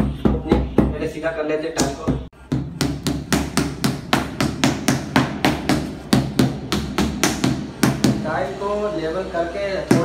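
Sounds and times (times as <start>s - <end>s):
rubber mallet tapping tile: 1.8s - 8.2s.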